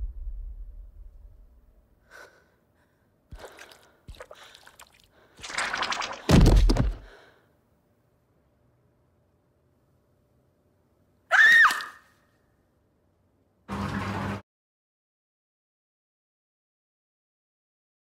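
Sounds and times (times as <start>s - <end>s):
shaky breaths: 2.1s - 5.8s, 6.7s - 7.5s.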